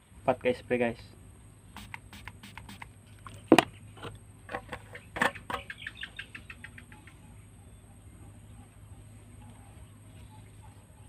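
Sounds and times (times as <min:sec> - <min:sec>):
spray bottle squirting: 0:01.8 - 0:02.9.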